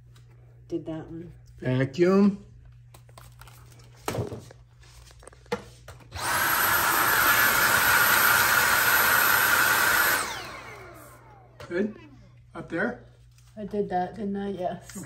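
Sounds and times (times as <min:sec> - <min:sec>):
vacuum cleaner whining: 0:06.0 - 0:12.3.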